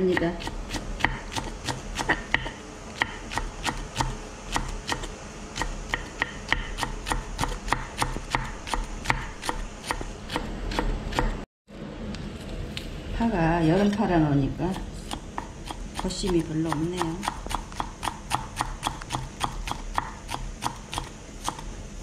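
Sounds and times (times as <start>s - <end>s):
knife chopping on wooden board: 0.0s - 11.4s, 14.7s - 21.7s.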